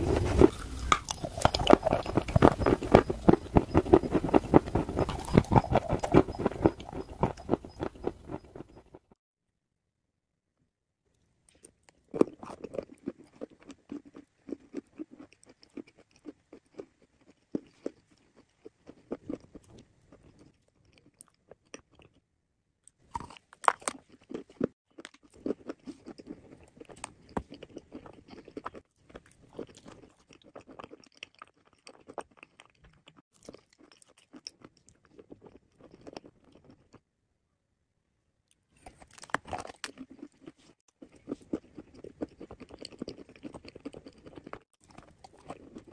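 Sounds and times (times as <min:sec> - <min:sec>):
crisp crunch of biting clay: 0:00.0 - 0:08.8, 0:38.8 - 0:45.9
crackly chewing: 0:00.0 - 0:09.2, 0:11.5 - 0:22.2, 0:22.8 - 0:37.1, 0:38.5 - 0:45.9.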